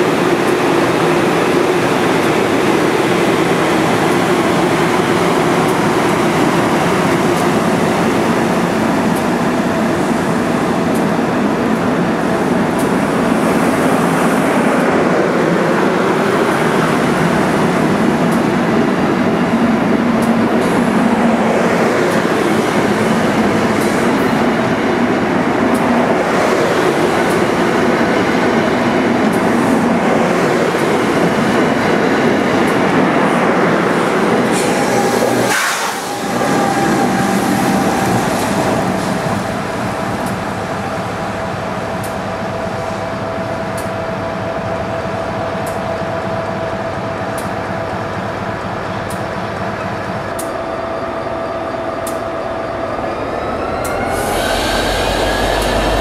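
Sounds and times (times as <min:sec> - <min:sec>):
train wheels clattering on rails: 0:00.0 - 0:56.0.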